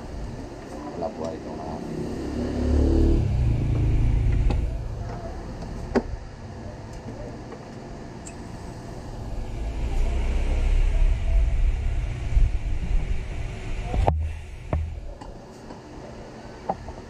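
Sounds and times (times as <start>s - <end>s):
loud low rumble: 2.4s - 7.3s, 8.4s - 15.2s.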